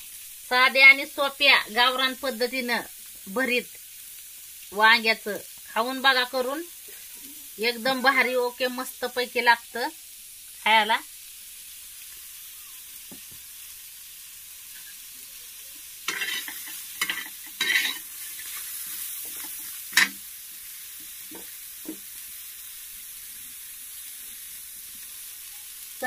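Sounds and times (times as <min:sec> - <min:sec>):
onions sizzling in a pan: 0:00.0 - 0:26.0
metal spoon scraping a pan: 0:16.1 - 0:20.2.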